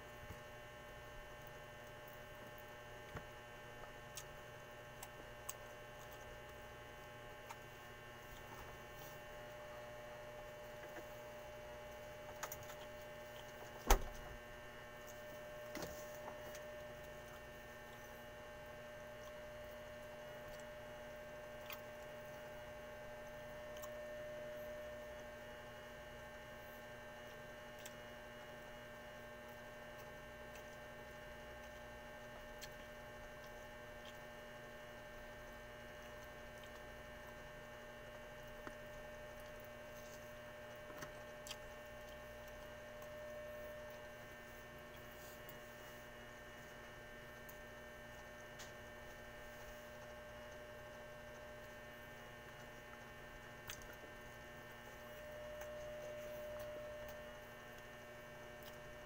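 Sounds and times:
electrical mains hum: 0.0 - 59.0.

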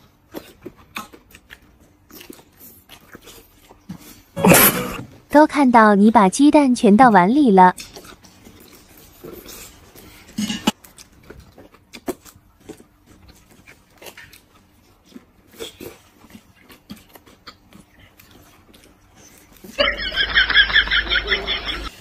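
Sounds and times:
chewing: 0.0 - 4.4, 7.8 - 19.8
slurping noodle soup: 2.2 - 5.0.

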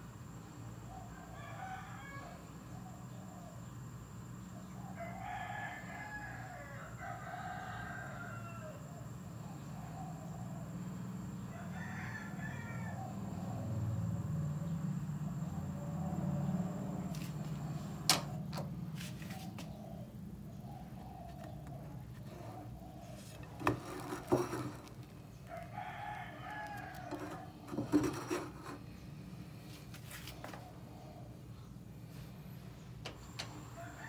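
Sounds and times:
rooster crowing: 0.9 - 2.6, 4.8 - 9.1, 11.4 - 13.8, 21.0 - 28.8, 33.4 - 34.0.

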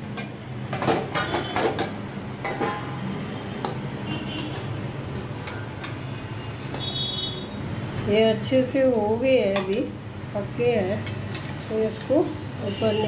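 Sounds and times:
metal utensils clinking on pot: 0.1 - 3.0, 4.4 - 6.9, 9.4 - 9.9, 11.0 - 12.2.

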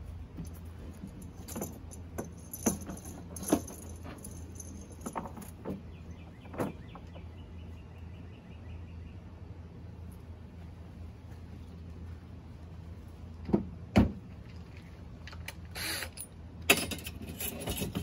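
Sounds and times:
rigging hardware clicking and clinking: 0.0 - 7.3, 14.5 - 18.0.

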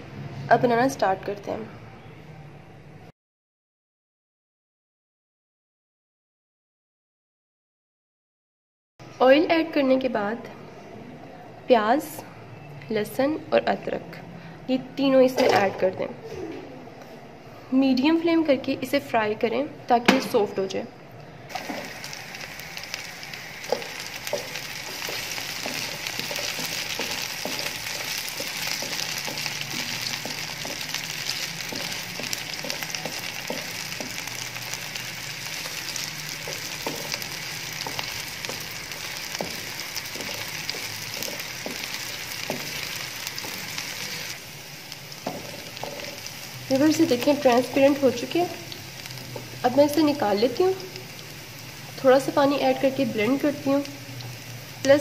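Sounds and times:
wooden spoon scraping wok: 21.5 - 22.2, 23.6 - 50.2
onions sizzling in hot oil: 21.5 - 55.0.

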